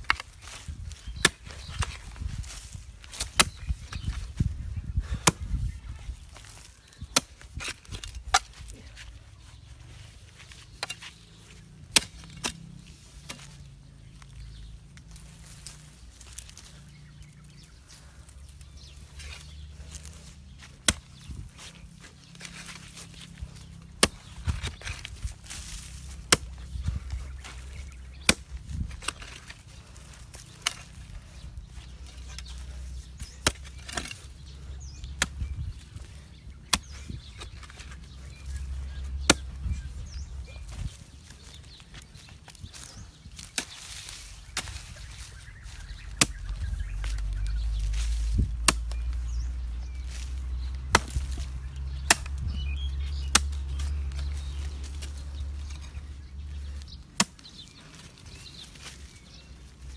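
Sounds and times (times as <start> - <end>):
hoe striking stony soil: 0.0 - 2.2, 3.0 - 4.3, 10.6 - 14.4, 19.0 - 31.1, 31.7 - 39.9, 43.3 - 58.7
scraping soil and stones: 0.0 - 59.9.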